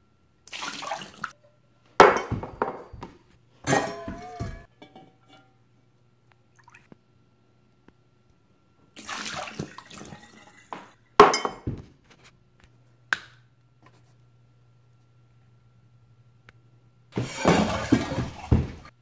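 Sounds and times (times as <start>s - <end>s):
tap water running over glass: 9.0s - 11.0s.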